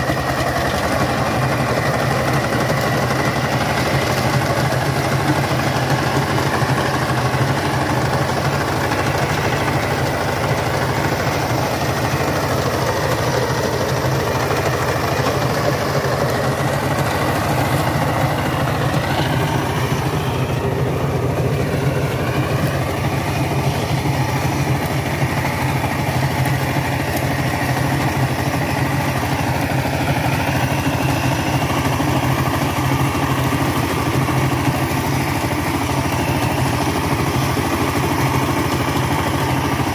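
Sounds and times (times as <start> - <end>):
diesel tiller engine knocking: 0.0 - 39.9.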